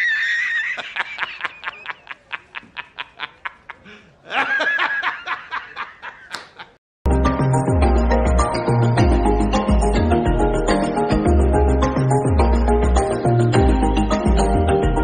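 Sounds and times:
man laughing high-pitched: 0:00.0 - 0:06.8.

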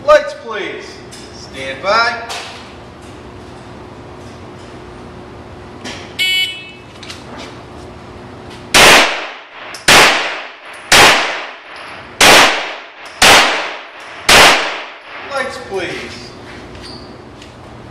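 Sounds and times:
loud gunshots: 0:08.7 - 0:15.2.

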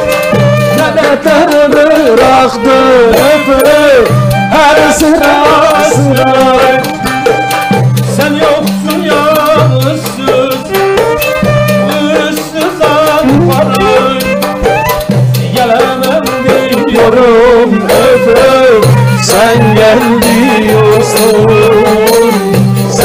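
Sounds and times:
folk ensemble playing: 0:00.0 - 0:23.0
wooden end-blown flute: 0:13.2 - 0:15.2.

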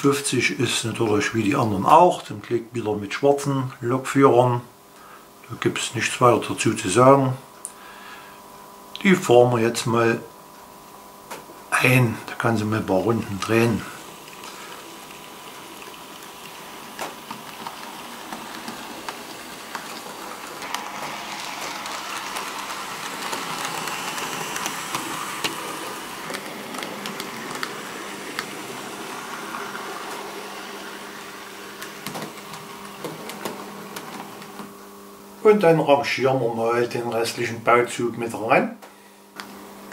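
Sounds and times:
model train motor whirring: 0:13.0 - 0:34.6.

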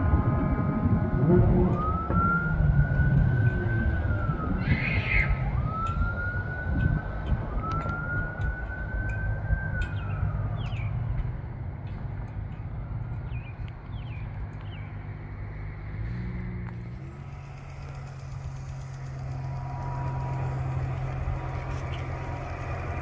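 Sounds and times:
horn blast: 0:00.0 - 0:04.5
fire truck siren wailing: 0:00.0 - 0:23.0
low rumble of traffic: 0:00.0 - 0:23.0.

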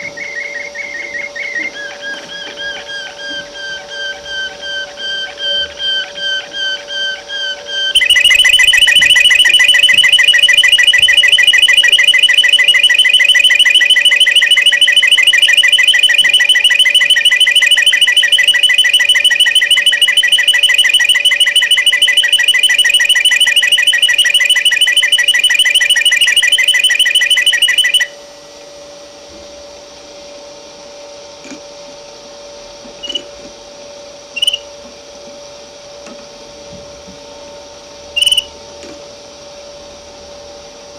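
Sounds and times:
faint steady hum: 0:00.0 - 0:40.9.

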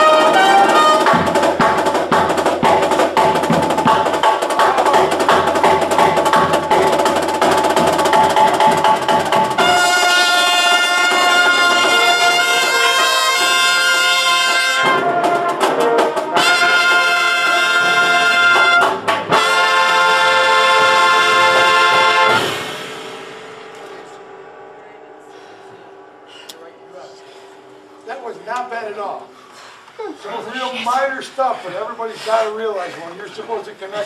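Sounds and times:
brass horn line playing chords: 0:00.0 - 0:23.5
drums: 0:00.0 - 0:29.3.

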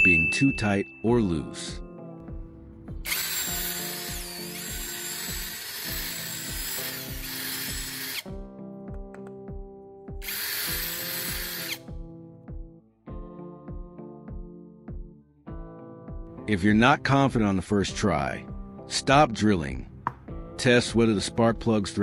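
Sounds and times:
background music with steady beat: 0:00.0 - 0:22.0
power drill boring into wood: 0:03.0 - 0:08.3, 0:10.2 - 0:11.8.

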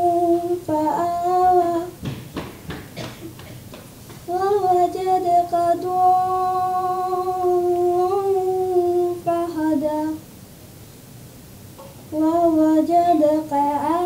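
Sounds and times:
girl chanting recitation: 0:00.0 - 0:02.0, 0:04.3 - 0:10.2, 0:12.1 - 0:14.0.

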